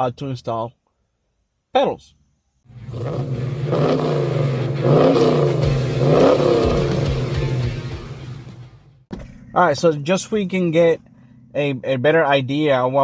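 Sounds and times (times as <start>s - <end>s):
car engine revving: 2.7s - 9.0s.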